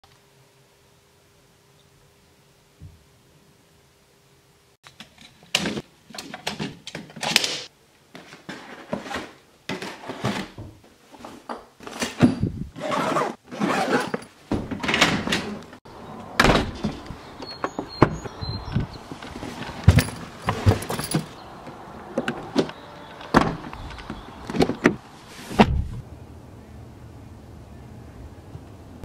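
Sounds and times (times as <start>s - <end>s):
knocks thuds and rustles: 14.1s - 15.4s, 16.4s - 21.4s, 23.3s - 26.0s.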